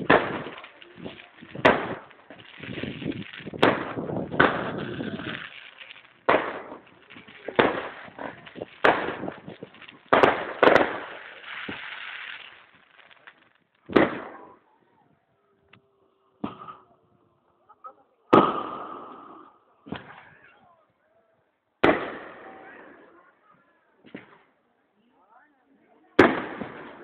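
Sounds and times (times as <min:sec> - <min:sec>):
fireworks bangs: 0:00.0 - 0:14.7, 0:18.3 - 0:20.2, 0:21.8 - 0:23.2, 0:26.2 - 0:27.0.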